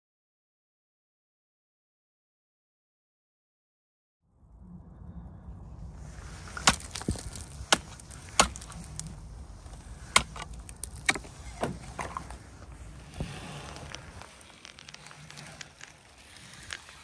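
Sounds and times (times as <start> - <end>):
low rumble: 4.3 - 16.8
shore ice cracking: 6.0 - 17.0.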